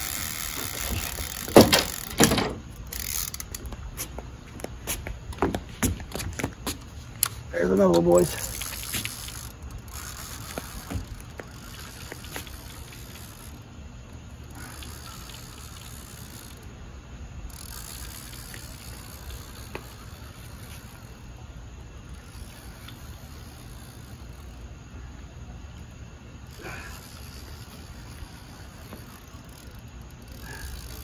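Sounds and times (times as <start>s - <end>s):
fishing reel being cranked: 0.0s - 3.7s, 7.2s - 13.6s, 14.4s - 16.7s, 17.5s - 21.4s, 22.1s - 24.6s, 26.5s - 31.0s
faint reel clicks: 0.0s - 3.8s, 7.2s - 16.7s, 17.5s - 21.3s, 26.5s - 31.0s
steady background hiss: 0.0s - 31.0s.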